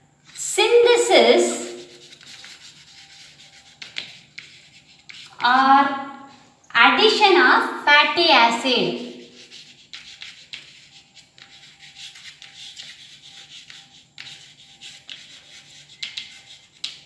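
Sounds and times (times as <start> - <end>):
chalk scratching on blackboard: 0.3 - 5.8, 9.0 - 17.0.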